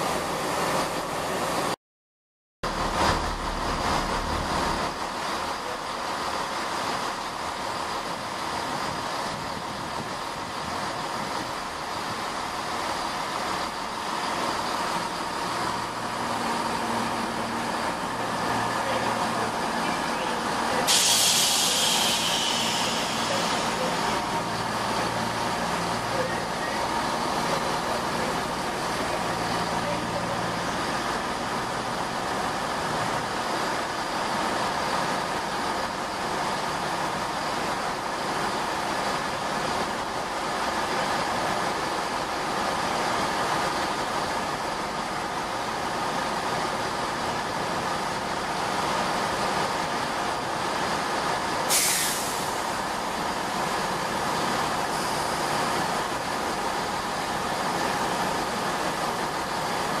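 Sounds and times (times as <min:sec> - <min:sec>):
diesel train engines running: 0:00.0 - 0:01.8, 0:02.6 - 1:00.0
sharp hiss: 0:20.8 - 0:24.3, 0:51.7 - 0:52.9.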